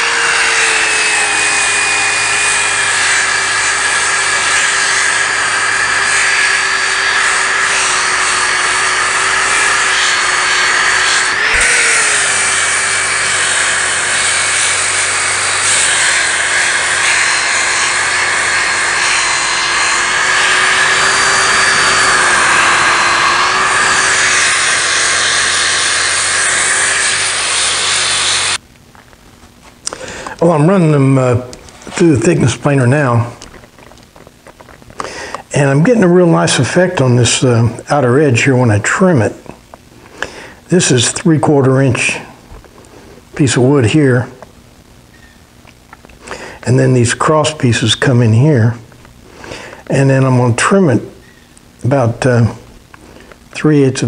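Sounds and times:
orbital sander running: 0:00.0 - 0:28.6.

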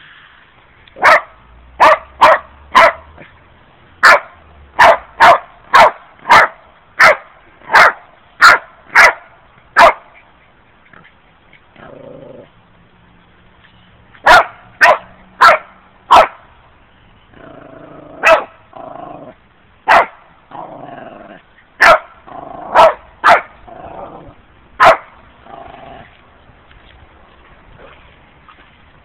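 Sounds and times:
dog barking: 0:01.0 - 0:03.1, 0:04.0 - 0:10.1, 0:14.2 - 0:16.4, 0:18.2 - 0:18.6, 0:19.9 - 0:20.2, 0:21.8 - 0:22.1, 0:22.7 - 0:23.5, 0:24.8 - 0:25.1
dog growling: 0:11.8 - 0:12.5, 0:20.5 - 0:21.4, 0:23.6 - 0:24.4, 0:25.4 - 0:26.2.

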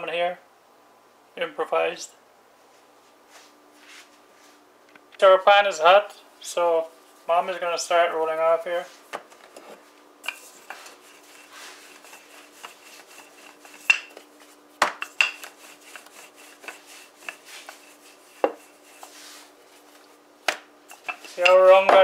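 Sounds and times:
faint steady hum: 0:00.0 - 0:22.0
rolling pin rolling dough: 0:09.6 - 0:22.0
rolling pin knocks: 0:20.4 - 0:22.0.

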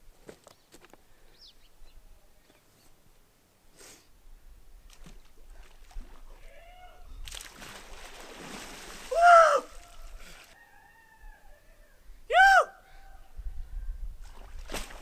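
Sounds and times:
water splashing: 0:07.2 - 0:10.5, 0:14.2 - 0:15.0
man yelling: 0:09.1 - 0:09.8, 0:12.3 - 0:12.8.

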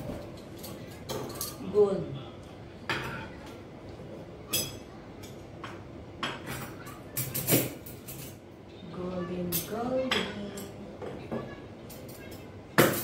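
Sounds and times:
cutlery clinking: 0:00.0 - 0:01.7, 0:04.5 - 0:08.4, 0:09.4 - 0:13.0.

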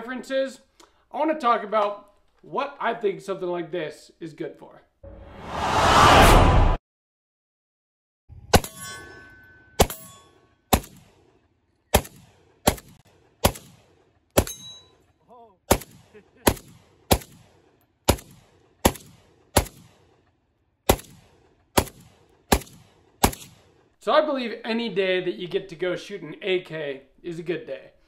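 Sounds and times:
pistol gunshots: 0:10.7 - 0:14.7, 0:15.7 - 0:20.1, 0:20.8 - 0:23.8.

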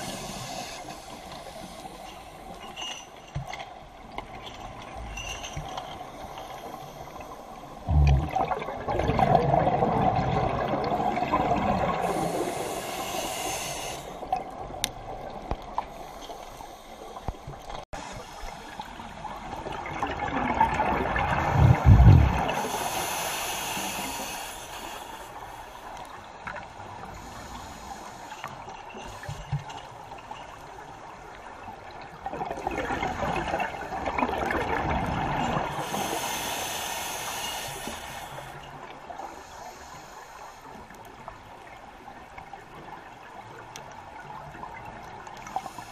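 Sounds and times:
regulator inhale hiss: 0:00.0 - 0:03.0, 0:06.1 - 0:07.9, 0:11.9 - 0:14.4, 0:15.9 - 0:17.4, 0:18.0 - 0:19.2, 0:22.4 - 0:26.1, 0:27.0 - 0:29.6, 0:35.7 - 0:41.2, 0:45.4 - 0:45.9
exhaled bubbles underwater: 0:07.8 - 0:12.8, 0:19.3 - 0:22.7, 0:32.1 - 0:36.2.

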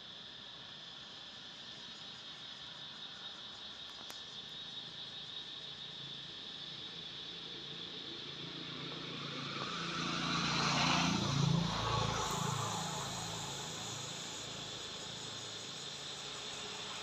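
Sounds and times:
insects buzzing: 0:00.0 - 0:17.0
vehicle passing on road: 0:08.1 - 0:17.0.

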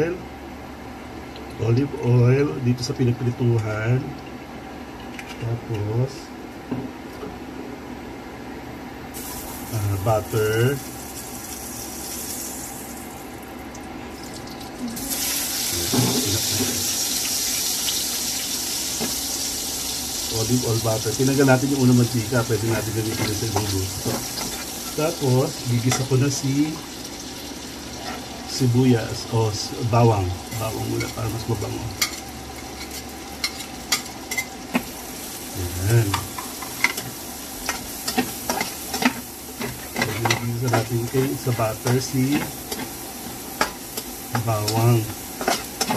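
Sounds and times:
butter sizzling in oil: 0:09.1 - 0:13.3, 0:14.2 - 0:45.9
oil sizzling in frying pan: 0:09.1 - 0:13.4, 0:14.1 - 0:45.9.

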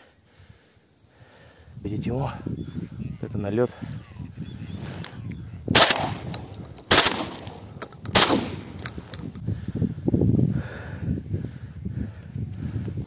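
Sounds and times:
shotgun shots: 0:05.7 - 0:08.9.

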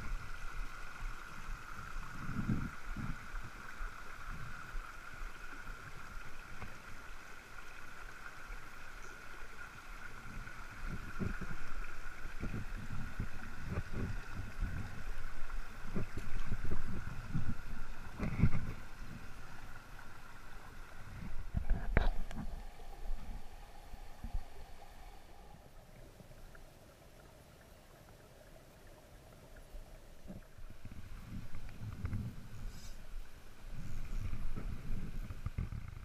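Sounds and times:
stream rushing over rocks: 0:00.0 - 0:26.9.

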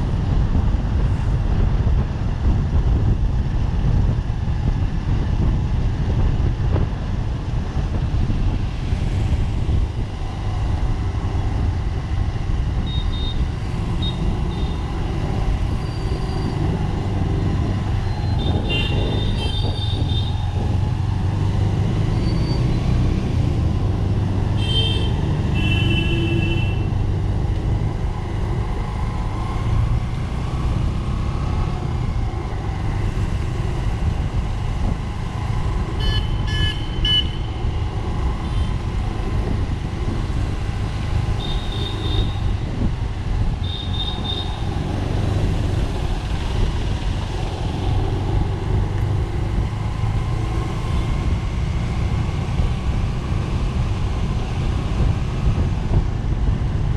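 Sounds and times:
engine and road rumble: 0:00.0 - 0:56.9
vehicle horns tooting: 0:24.6 - 0:26.9, 0:36.0 - 0:37.5, 0:41.4 - 0:42.5.

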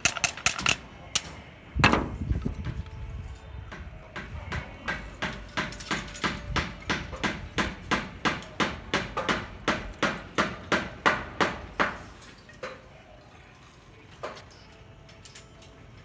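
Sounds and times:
hammering with ringing blows: 0:03.7 - 0:12.1.

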